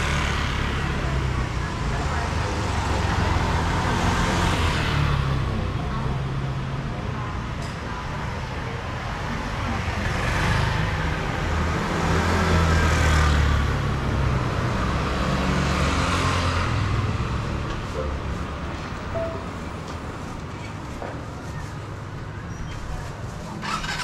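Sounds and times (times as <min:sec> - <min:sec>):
traffic rumble and tyre hiss: 0:00.0 - 0:24.0
vehicles passing close by: 0:00.0 - 0:24.0.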